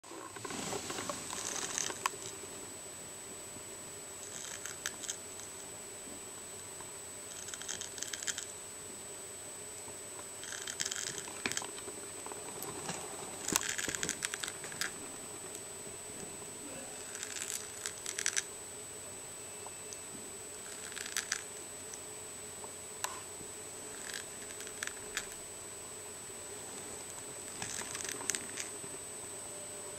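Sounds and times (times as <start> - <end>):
snail rasping at eggshell: 1.3 - 2.2, 4.2 - 5.2, 7.3 - 8.5, 10.4 - 15.0, 17.0 - 18.5, 20.6 - 21.5, 23.9 - 25.4, 26.9 - 28.8.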